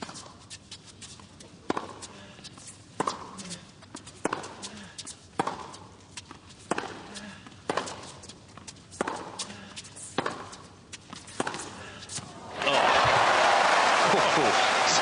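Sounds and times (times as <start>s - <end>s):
tennis ball struck with racquets: 3.0s - 3.4s, 4.2s - 4.7s, 5.4s - 8.2s, 9.0s - 12.2s.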